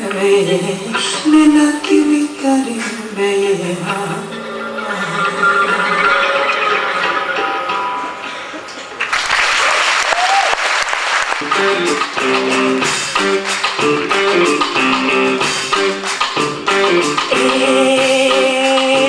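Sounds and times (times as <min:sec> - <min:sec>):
audience applauding and cheering: 0:05.8 - 0:17.2
live band guitar riff: 0:11.3 - 0:19.0
percussion hits: 0:11.4 - 0:19.0.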